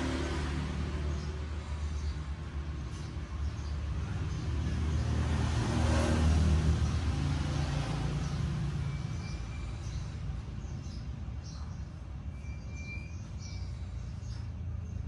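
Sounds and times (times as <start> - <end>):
vehicle engine passing by: 0.0 - 11.9.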